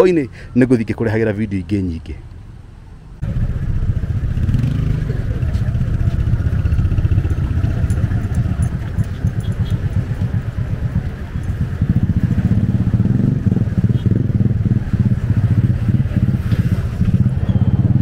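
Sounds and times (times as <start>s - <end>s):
helicopter rotor and engine rumble: 3.2s - 13.1s.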